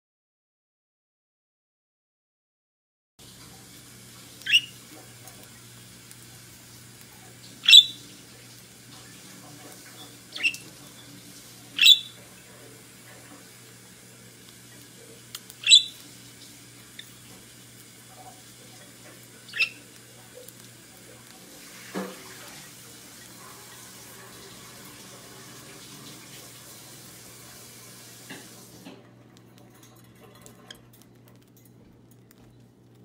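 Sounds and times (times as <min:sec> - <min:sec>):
budgerigars chirping: 0:04.4 - 0:04.8, 0:07.6 - 0:08.1, 0:09.9 - 0:12.2, 0:15.6 - 0:16.0, 0:19.4 - 0:20.0.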